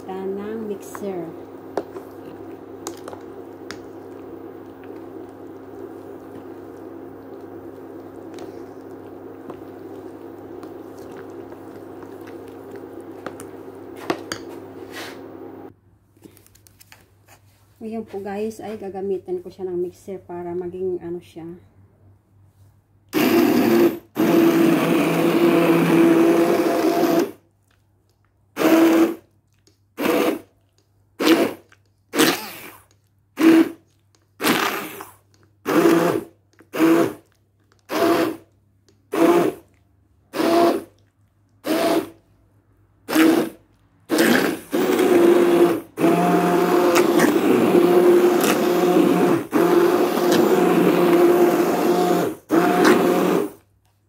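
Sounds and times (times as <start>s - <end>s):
immersion blender running: 0.0s - 15.7s, 23.2s - 27.4s, 28.6s - 29.2s, 30.0s - 30.5s, 31.2s - 31.6s, 32.2s - 32.8s, 33.4s - 33.8s, 34.4s - 35.1s, 35.7s - 37.3s, 37.9s - 38.4s, 39.1s - 39.6s, 40.3s - 40.9s, 41.6s - 42.2s, 43.0s - 53.6s.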